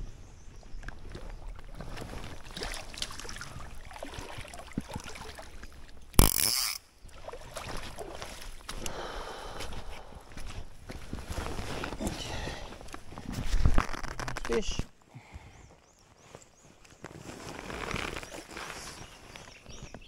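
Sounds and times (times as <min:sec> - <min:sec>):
creek water sloshing: 0:00.7 - 0:08.9.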